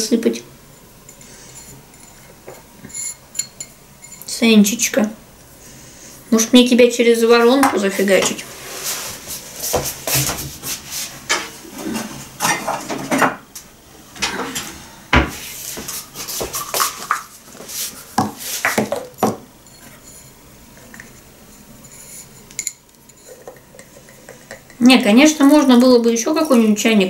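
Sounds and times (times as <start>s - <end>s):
dishes and utensils clinking: 1.1s - 4.3s, 21.8s - 24.8s.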